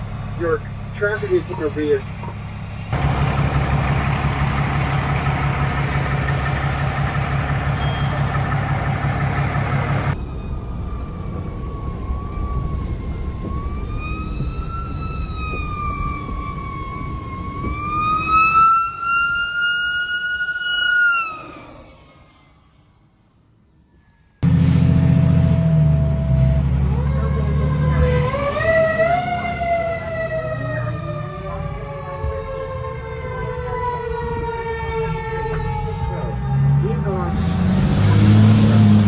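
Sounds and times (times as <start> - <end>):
fire truck engine running: 0.0 - 20.5, 24.4 - 39.0
siren wailing: 5.3 - 23.2, 24.9 - 37.6.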